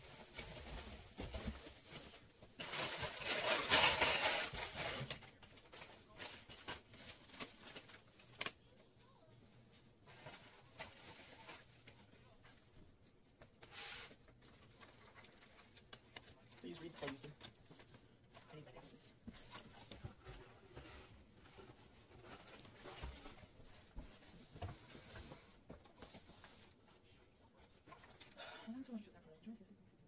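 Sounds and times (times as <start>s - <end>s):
paper and packaging rustling: 0.0s - 8.9s, 9.7s - 28.4s.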